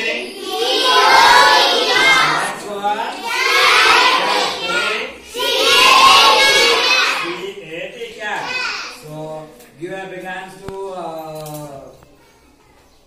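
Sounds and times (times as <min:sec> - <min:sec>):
children reciting in chorus: 0:00.0 - 0:07.6, 0:08.4 - 0:09.1.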